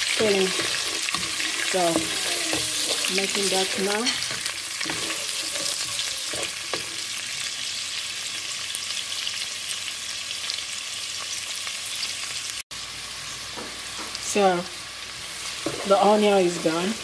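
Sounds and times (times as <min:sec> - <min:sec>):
onions sizzling in a pan: 0:00.0 - 0:17.0
wooden spatula scraping a pan: 0:00.1 - 0:07.0.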